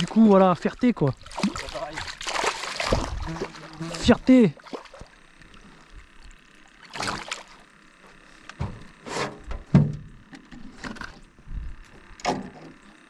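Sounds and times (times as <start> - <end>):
fish splashing at water surface: 1.0 - 4.0, 4.6 - 7.8.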